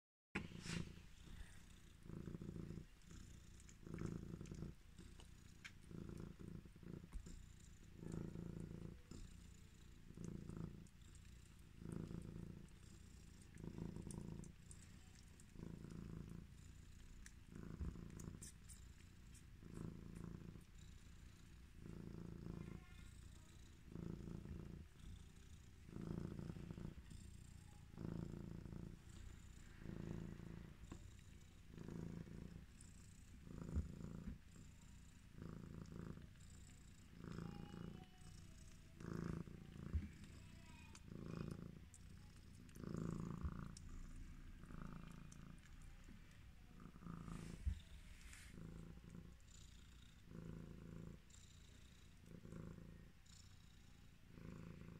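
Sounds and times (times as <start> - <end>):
cat purring: 0.4 - 54.9.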